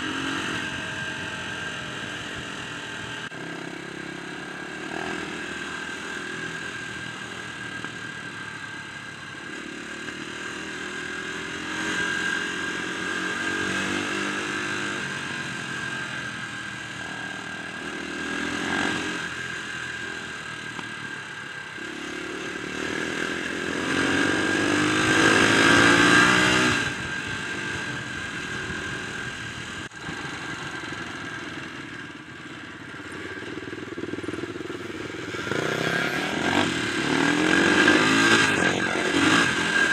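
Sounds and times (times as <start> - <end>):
dirt bike engine revving: 0.0 - 7.5, 17.0 - 20.8, 21.8 - 31.8, 33.0 - 39.9.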